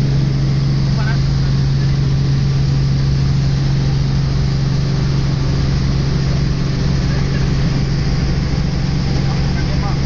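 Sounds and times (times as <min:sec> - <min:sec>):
helicopter engine and rotor drone: 0:00.0 - 0:10.0.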